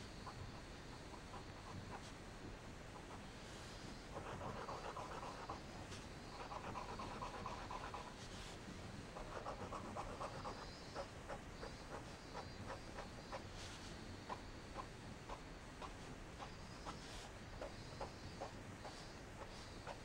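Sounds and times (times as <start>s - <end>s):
pen nib scratching on paper: 4.1s - 8.6s, 9.2s - 20.0s.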